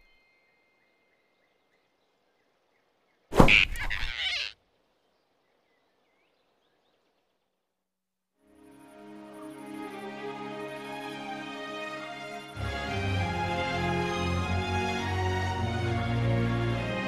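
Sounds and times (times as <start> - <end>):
cartoon swoosh sound effect: 3.3 - 4.5
soft music: 8.4 - 17.0.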